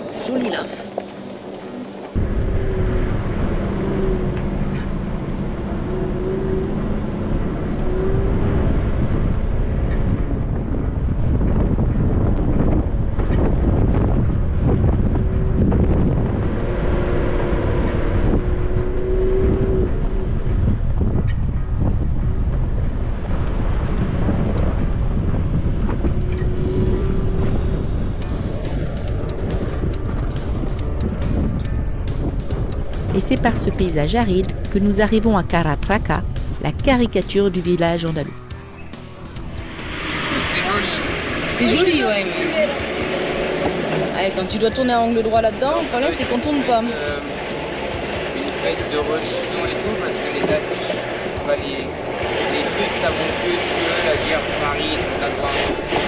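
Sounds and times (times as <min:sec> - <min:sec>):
faint wavering engine tone: 0:00.0 - 0:11.4, 0:25.8 - 0:37.7
vehicle rumble on gravel: 0:00.0 - 0:36.6, 0:38.4 - 0:56.0
wind on microphone: 0:02.1 - 0:36.9, 0:38.3 - 0:56.0.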